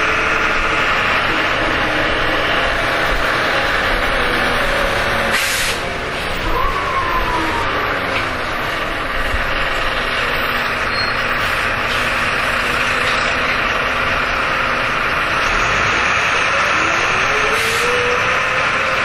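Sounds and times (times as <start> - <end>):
bus diesel engine from inside: 0.0 - 19.0
rising whine: 6.3 - 8.8.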